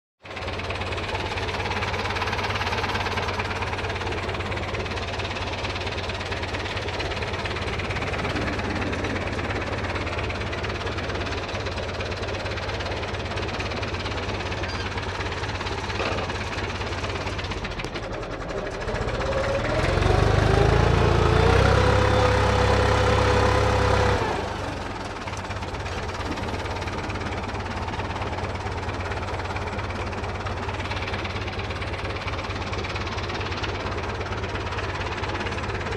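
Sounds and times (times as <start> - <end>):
tractor diesel engine running: 0.2 - 35.9
rising engine whine: 6.6 - 11.2, 17.4 - 25.1.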